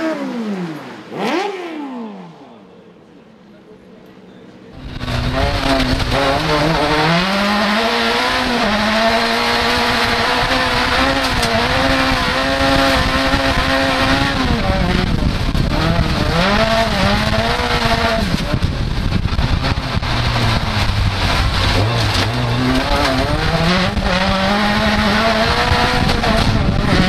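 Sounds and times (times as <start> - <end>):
car engine revving hard: 0.0 - 2.4, 4.8 - 27.0.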